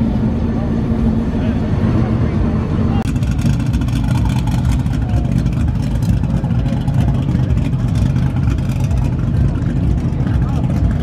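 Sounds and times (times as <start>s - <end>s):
faint crowd chatter: 0.0s - 11.0s
truck engine rumbling: 0.0s - 11.0s.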